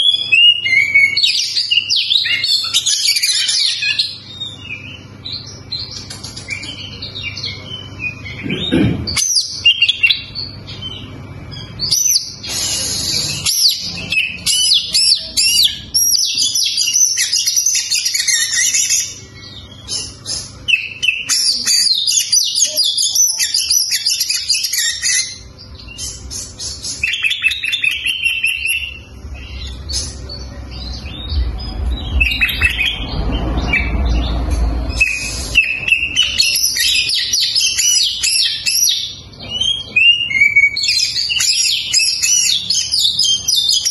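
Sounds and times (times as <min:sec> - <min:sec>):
bird singing chirps and trills: 0:00.0 - 0:43.9.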